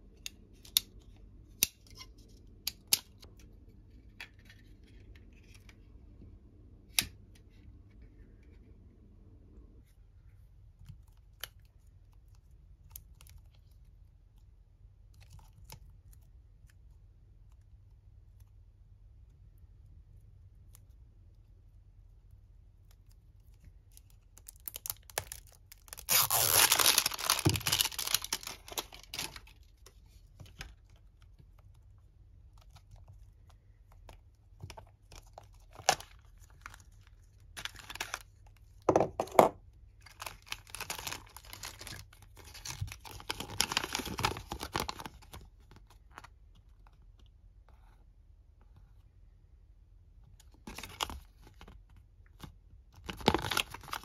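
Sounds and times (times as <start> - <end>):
plastic strip tearing: 24.4 - 29.5
plastic bag and paper crinkling: 24.4 - 29.8, 40.1 - 45.9.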